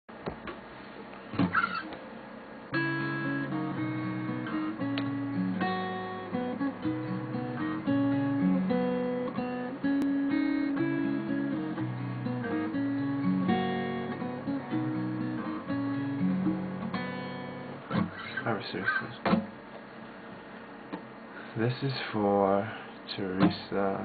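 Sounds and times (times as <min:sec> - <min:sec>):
acoustic guitar chords: 0:02.7 - 0:19.6.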